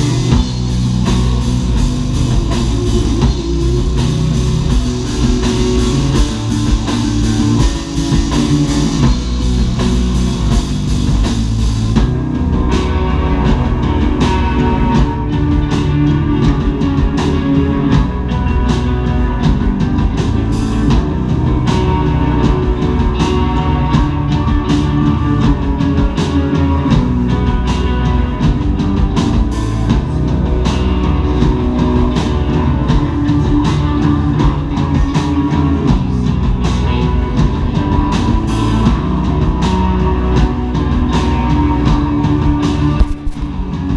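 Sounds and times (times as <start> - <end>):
rock band playing loudly: 0.0 - 43.9
sharp drum hits: 43.0 - 43.7.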